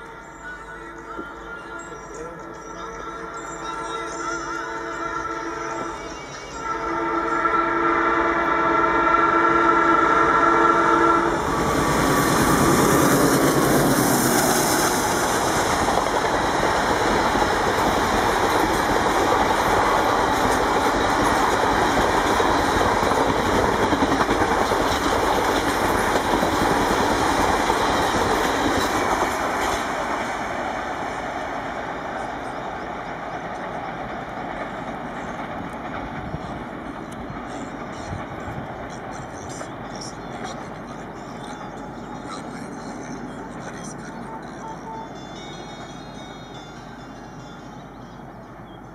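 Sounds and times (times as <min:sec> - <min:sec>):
locomotive horn blast: 0:02.8 - 0:15.3
train wheels clattering over rails: 0:11.4 - 0:43.4.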